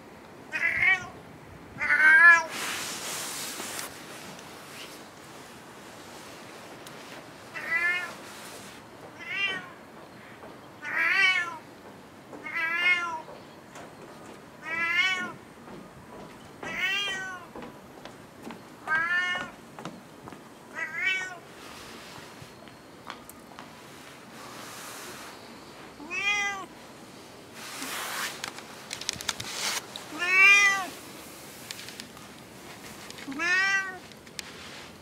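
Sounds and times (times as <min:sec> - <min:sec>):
cat meowing: 0:00.5 - 0:01.2, 0:07.6 - 0:08.2, 0:09.2 - 0:09.7, 0:14.6 - 0:15.4, 0:16.7 - 0:17.5, 0:18.9 - 0:19.5, 0:20.7 - 0:21.4, 0:26.0 - 0:26.7, 0:30.1 - 0:30.9, 0:33.3 - 0:34.0.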